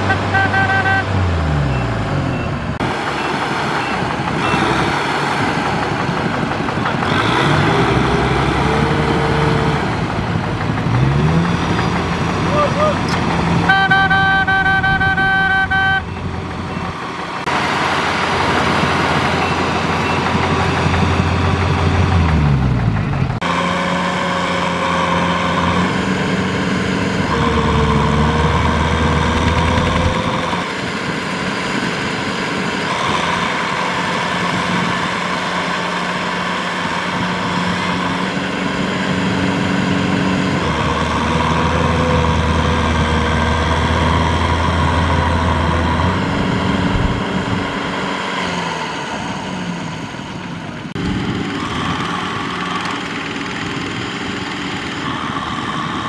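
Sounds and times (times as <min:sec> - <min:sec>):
horn sounding: 0:00.0 - 0:01.6, 0:12.5 - 0:16.4
tractor diesel engine: 0:00.0 - 0:56.0.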